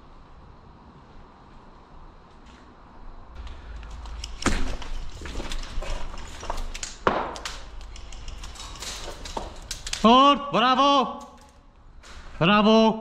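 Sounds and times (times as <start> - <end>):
sharp clicks and knocks: 3.4 - 10.2.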